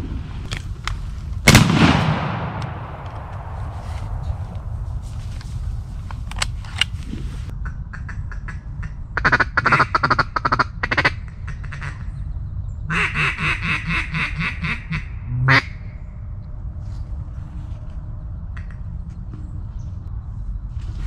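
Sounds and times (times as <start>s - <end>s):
duck call quacks: 12.9s - 15.7s.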